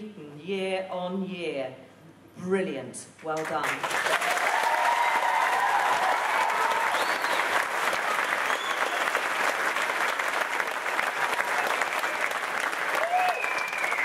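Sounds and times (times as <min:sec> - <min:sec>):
audience applauding: 0:03.6 - 0:14.0
crowd cheering: 0:04.0 - 0:14.0.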